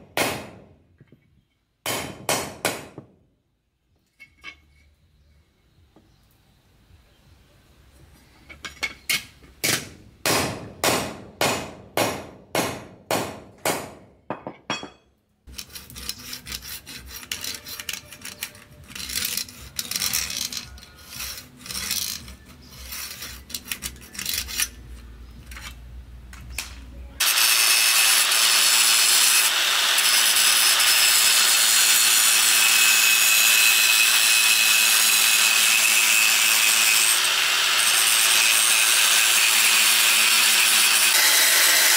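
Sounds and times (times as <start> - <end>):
blade scraping and knocking: 14.3 - 26.7
angle grinder grinding: 15.5 - 25.0, 27.2 - 41.9.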